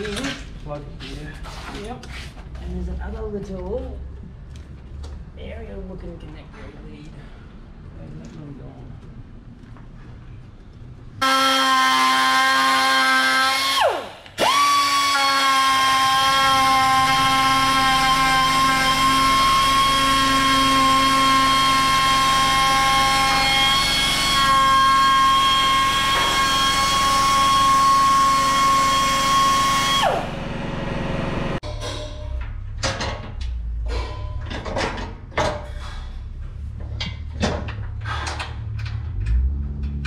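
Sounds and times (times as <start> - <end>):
air grinder whining: 11.2 - 31.6.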